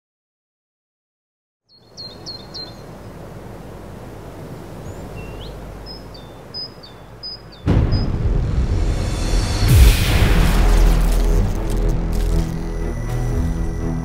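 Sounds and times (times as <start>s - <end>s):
bird chirps: 1.7s - 3.0s, 4.8s - 8.2s
sudden loud hit: 7.7s - 12.8s.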